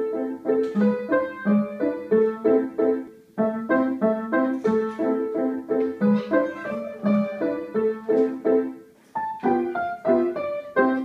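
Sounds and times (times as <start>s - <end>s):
upright piano playing: 0.0s - 11.0s.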